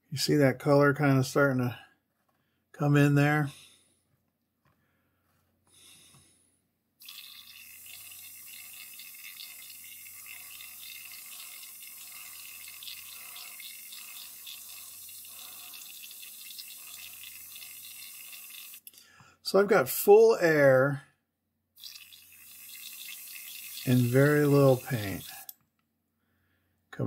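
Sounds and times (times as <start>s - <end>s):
airbrush air hissing: 7.0s - 18.8s, 22.3s - 25.5s.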